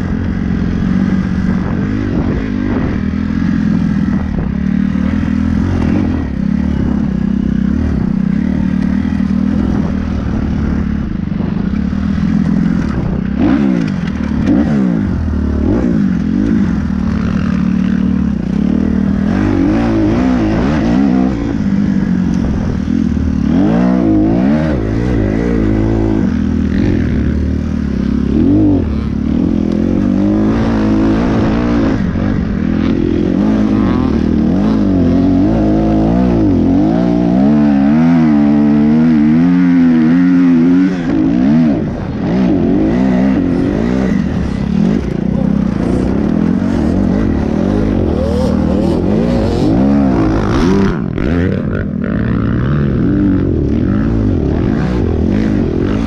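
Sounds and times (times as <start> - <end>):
dirt bike engine revving: 0.0 - 56.0
bike rattling: 41.5 - 56.0.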